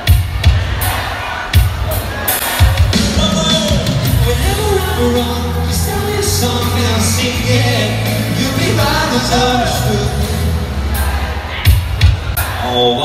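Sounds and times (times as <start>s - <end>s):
drum beat: 0.0s - 9.0s, 11.0s - 12.6s
bass line: 1.6s - 12.4s
men singing: 2.1s - 11.8s.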